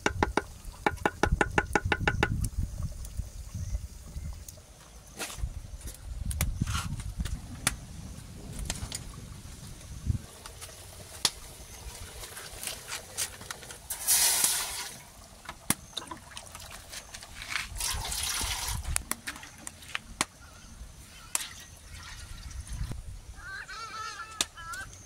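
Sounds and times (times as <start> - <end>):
scattered clicks and knocks: 0.0 - 2.4
water splashing: 10.3 - 19.9.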